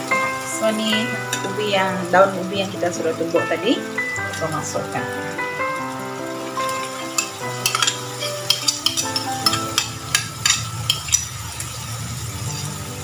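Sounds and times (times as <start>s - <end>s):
oil sizzling in a wok: 0.0s - 13.0s
metal spoon scraping ceramic plate: 6.9s - 11.4s.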